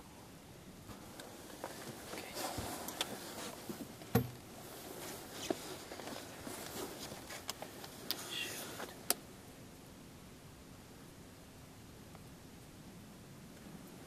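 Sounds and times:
faint rustling: 0.8 - 9.2
soft thump: 4.1 - 4.4.

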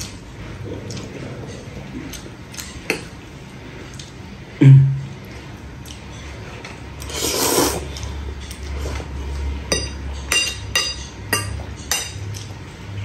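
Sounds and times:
slurping noodles: 7.0 - 8.2
knife and fork clinking on bowl: 9.7 - 12.5.

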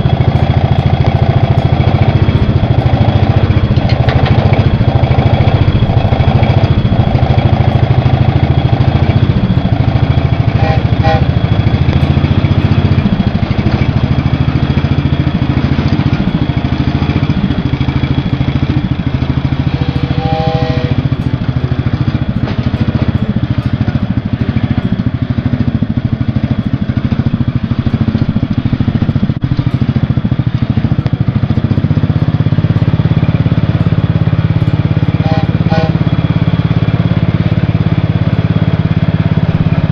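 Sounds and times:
garden tractor engine running: 0.0 - 39.9
compressed-air train whistle toots: 10.4 - 12.2, 19.5 - 21.3, 35.0 - 36.3.

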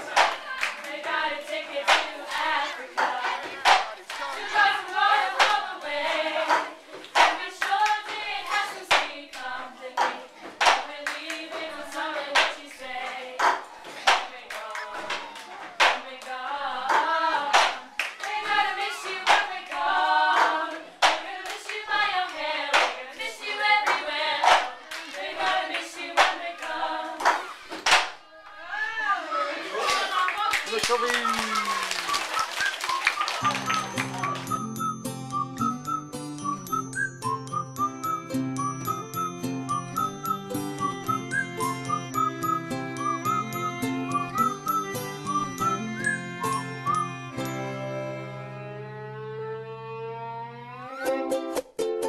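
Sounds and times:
hand claps: 0.0 - 5.7, 6.4 - 21.8, 22.7 - 23.0, 23.8 - 26.5, 27.2 - 28.2, 30.3 - 34.8
children singing: 0.0 - 30.2.

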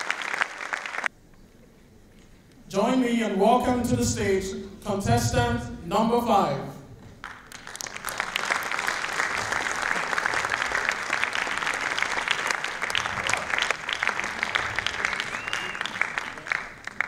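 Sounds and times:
large audience applauding: 0.0 - 1.1, 7.2 - 17.0.

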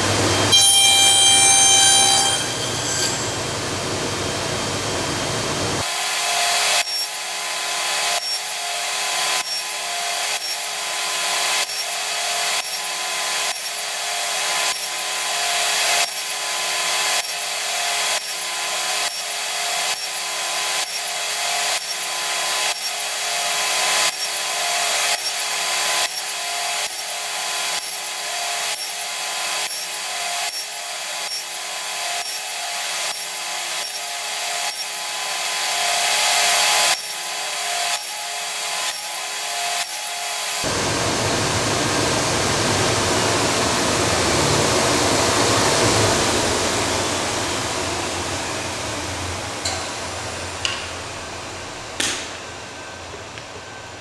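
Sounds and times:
spinning saw blade tone: 0.0 - 3.8
table saw cutting grooves in wood: 0.0 - 54.0.

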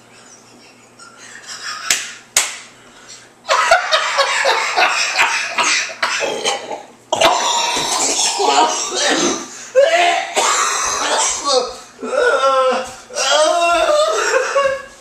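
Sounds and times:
man laughing hard: 0.3 - 2.2, 3.5 - 6.6, 7.2 - 15.0
sharp smacks: 1.9 - 2.7
person coughing: 5.6 - 12.9.

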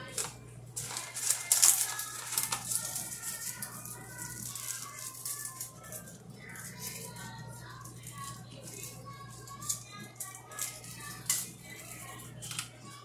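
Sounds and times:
foil pan crinkling: 0.0 - 13.0
gloved hands rustling petals: 0.2 - 7.3.

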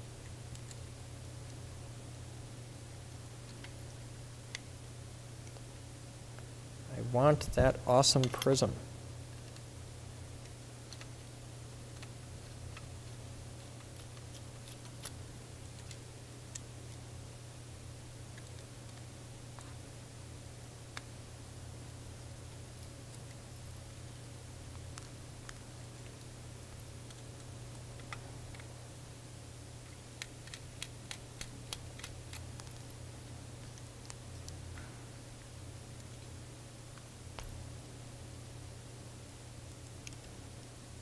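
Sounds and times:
steady low hum: 0.0 - 41.0
small screwdriver and parts clicking: 29.8 - 32.8.

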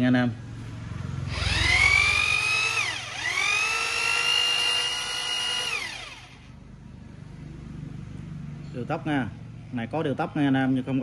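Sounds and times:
rotary hammer motor whine: 1.3 - 6.6.

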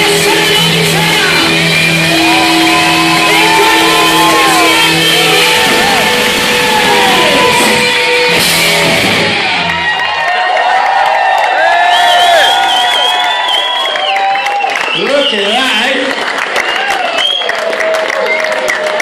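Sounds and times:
live rock band playing: 0.0 - 10.2.

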